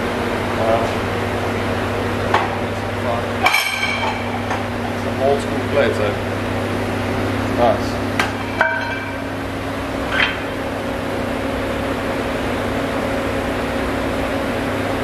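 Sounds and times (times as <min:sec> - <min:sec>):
steady background hum: 0:00.0 - 0:15.0
weight plate clanking: 0:08.3 - 0:09.3.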